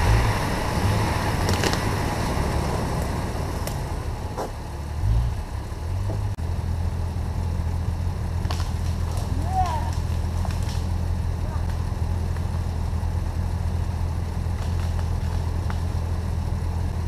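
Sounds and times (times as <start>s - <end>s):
low uneven rumble: 0.0s - 17.0s
footsteps on twigs: 8.4s - 11.0s.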